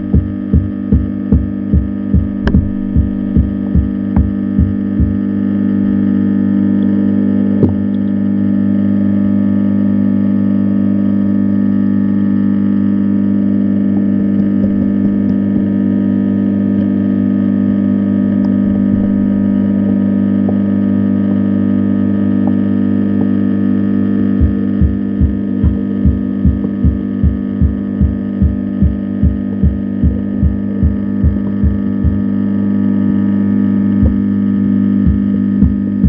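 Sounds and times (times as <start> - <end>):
low steady hum underwater: 0.0 - 36.0.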